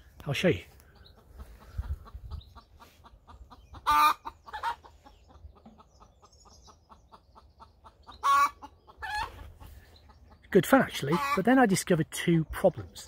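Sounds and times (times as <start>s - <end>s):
chickens clucking: 0.0s - 13.0s
chicken squawk: 1.2s - 5.2s, 7.6s - 9.7s, 11.1s - 11.4s.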